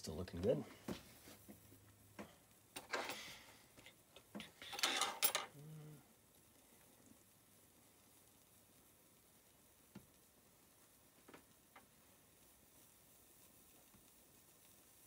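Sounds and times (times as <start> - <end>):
metal wrench scraping and clinking: 4.6 - 5.5.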